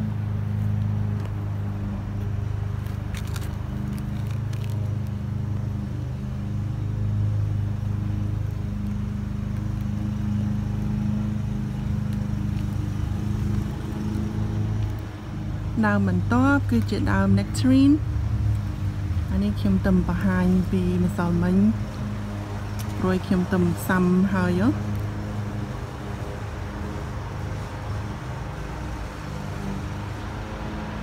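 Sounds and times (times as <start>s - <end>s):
machine humming: 0.0s - 31.0s
faint clicks and rustles: 2.2s - 5.7s, 11.7s - 15.4s.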